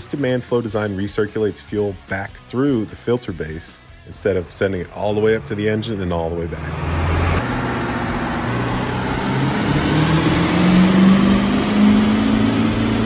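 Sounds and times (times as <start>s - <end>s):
diesel engine revving: 4.4s - 13.0s.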